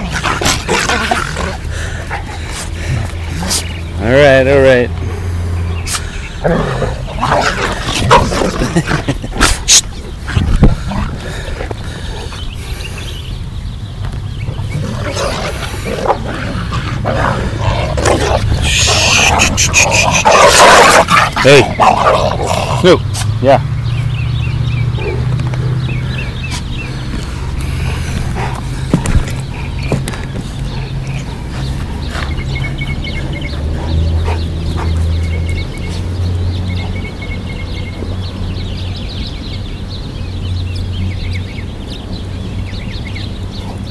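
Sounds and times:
dogs growling: 0.0 - 13.2, 14.4 - 23.1, 24.1 - 37.0
birds chirping: 0.0 - 43.9.

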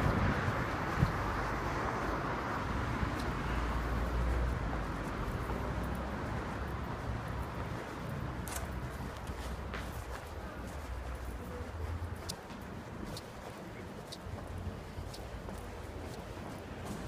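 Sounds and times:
cars humming on road: 0.0 - 17.0.

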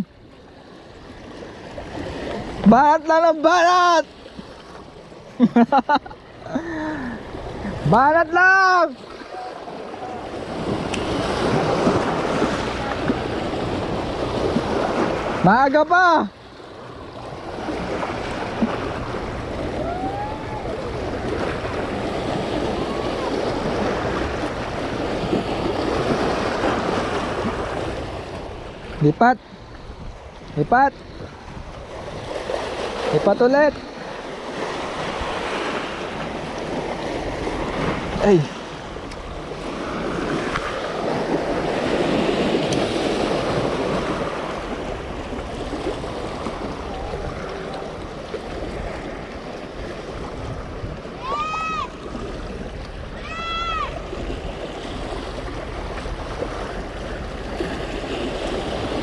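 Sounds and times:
waves splashing against rocks: 0.0 - 59.0
wind buffeting microphone: 16.7 - 59.0.

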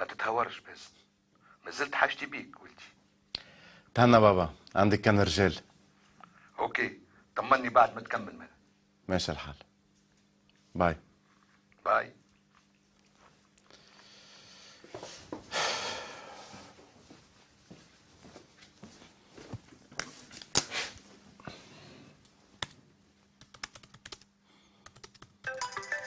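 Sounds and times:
laptop keyboard typing: 23.4 - 26.0.

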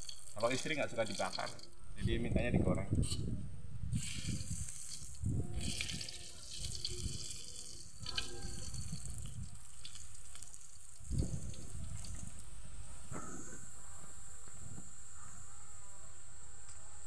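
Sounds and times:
fish sizzling in hot oil: 0.0 - 1.6, 4.0 - 12.5.

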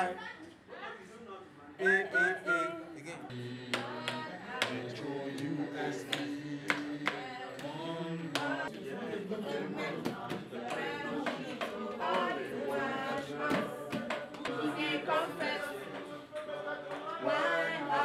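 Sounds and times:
group singing unaccompanied: 1.8 - 18.0
hand claps: 3.6 - 8.7, 10.0 - 12.3, 13.5 - 14.7.

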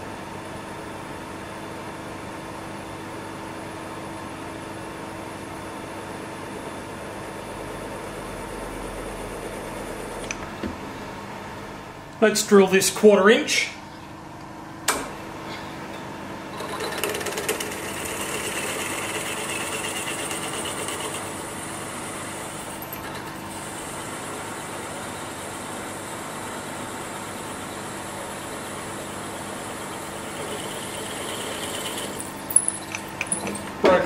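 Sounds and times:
milling machine motor hum: 16.5 - 34.0.

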